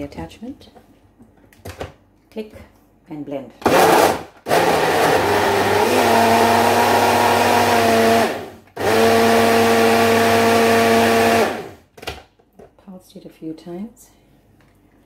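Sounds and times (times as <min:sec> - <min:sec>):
blender motor whine: 0:03.7 - 0:11.8.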